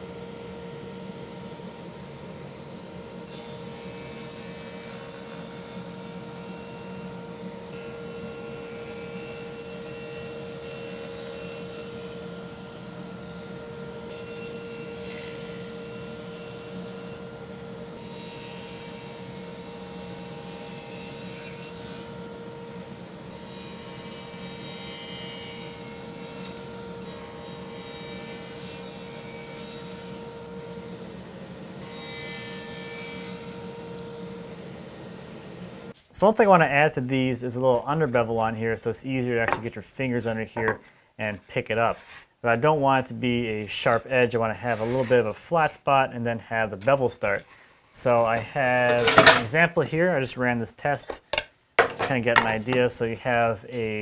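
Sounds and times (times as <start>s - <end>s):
table saw motor hum: 0.0s - 36.0s
saw blade cutting wood: 48.9s - 49.5s.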